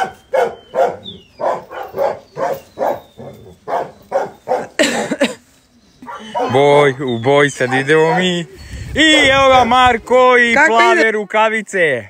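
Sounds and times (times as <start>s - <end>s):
dog barking: 0.0s - 4.8s, 6.0s - 6.7s, 7.6s - 8.4s.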